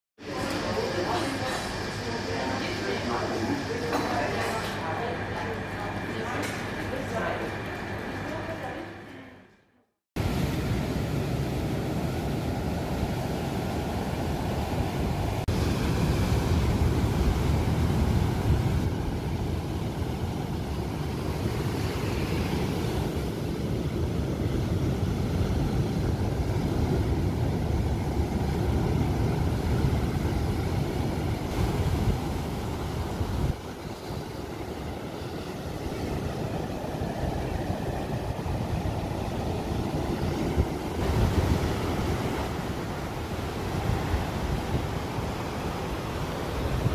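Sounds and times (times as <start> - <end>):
surf breaking on a beach: 10.2 - 46.9
wind buffeting the microphone: 10.2 - 46.9.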